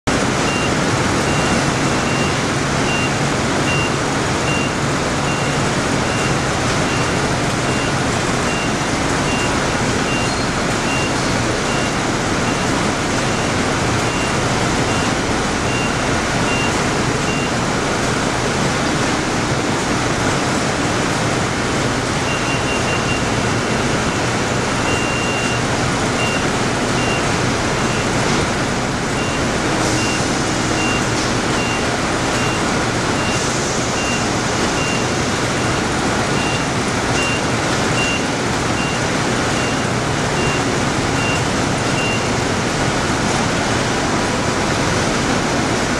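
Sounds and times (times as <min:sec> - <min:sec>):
vehicle warning beeper: 0:00.5 - 0:17.6, 0:22.2 - 0:28.2, 0:29.2 - 0:35.7, 0:36.4 - 0:42.3.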